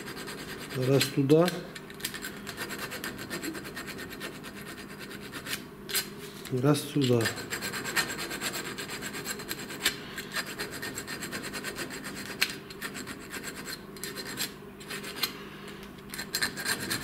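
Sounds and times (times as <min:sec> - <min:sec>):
file rasping on metal: 0:00.0 - 0:01.1, 0:02.3 - 0:05.6, 0:07.2 - 0:15.1, 0:16.2 - 0:17.0.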